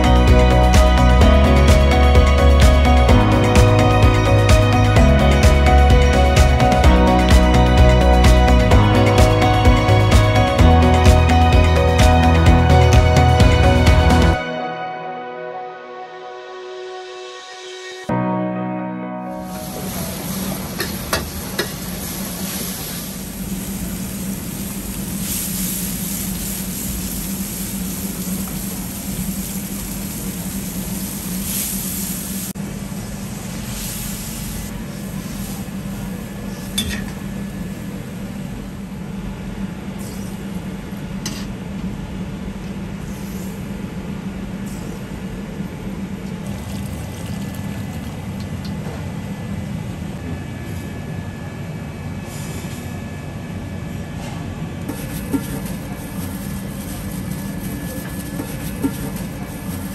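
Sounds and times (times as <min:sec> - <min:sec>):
stove humming: 0:19.5 - 0:43.0, 0:54.7 - 0:59.9.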